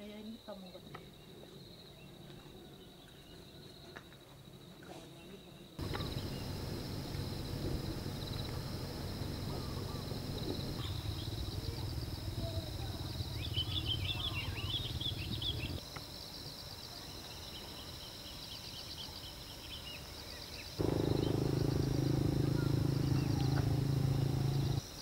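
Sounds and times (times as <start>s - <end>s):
insects chirping: 5.4s - 25.0s
birds calling: 5.8s - 15.8s, 20.8s - 24.8s
low rumble: 20.8s - 24.8s.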